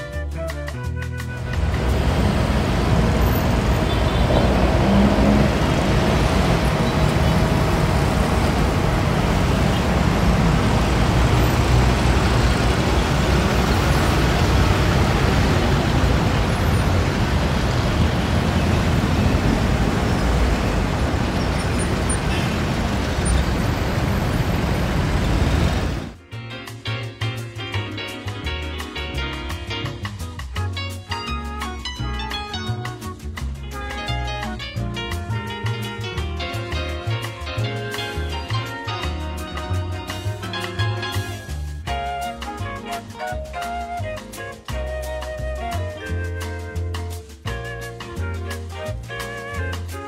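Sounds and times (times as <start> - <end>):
road traffic driving past: 1.4 - 26.2.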